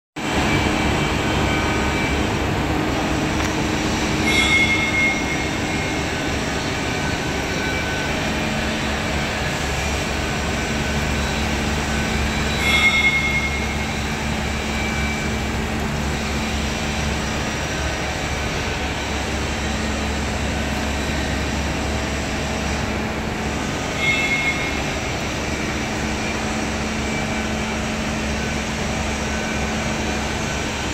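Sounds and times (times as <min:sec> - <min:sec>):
machine drone with low hum: 0:00.2 - 0:30.9
high-pitched squeals: 0:03.0 - 0:28.5.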